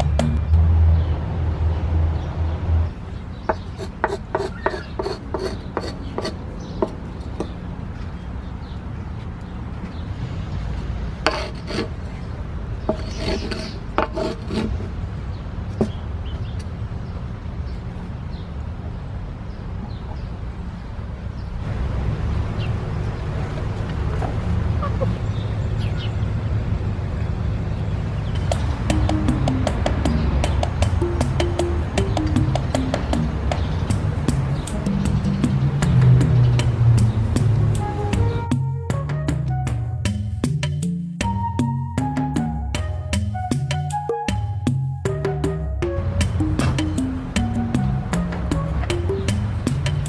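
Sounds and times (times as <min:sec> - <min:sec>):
scraper scraping on clay griddle: 0:03.5 - 0:06.4, 0:11.3 - 0:12.0, 0:12.9 - 0:15.0.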